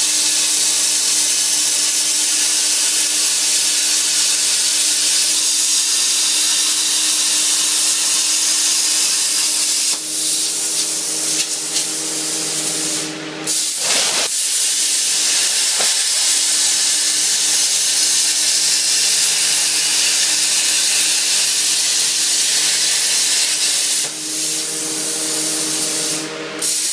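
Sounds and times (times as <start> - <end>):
plasma torch hissing: 0.0 - 26.9
steady hum: 6.2 - 14.2, 24.0 - 26.6.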